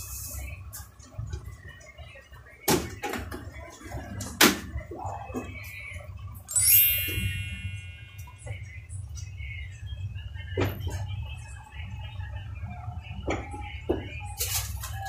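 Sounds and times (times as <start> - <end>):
bright twinkling chime: 6.5 - 8.6.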